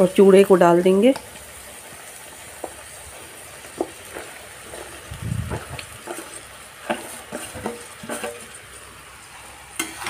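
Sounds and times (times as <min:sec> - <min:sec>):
faint sizzle: 0:00.0 - 0:10.0
spoon scraping bowl and pan: 0:02.5 - 0:09.0, 0:09.7 - 0:10.0.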